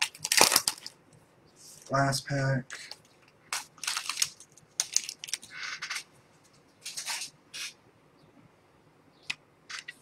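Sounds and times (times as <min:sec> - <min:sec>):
wrapper tearing and crinkling: 0:00.0 - 0:00.9, 0:03.5 - 0:05.5.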